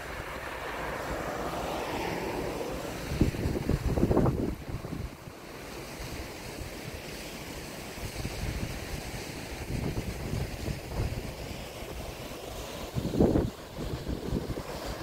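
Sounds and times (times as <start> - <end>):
wind buffeting microphone: 0.0 - 5.4, 8.0 - 12.2, 12.8 - 15.0
outdoor wind rushing hiss: 0.0 - 15.0.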